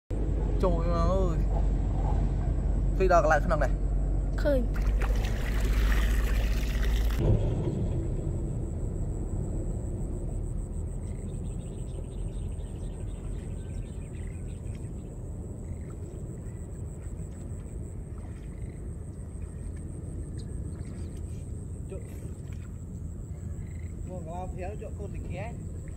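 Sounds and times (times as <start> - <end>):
low outdoor rumble: 0.1 - 25.9
water pouring off a net: 4.8 - 7.5.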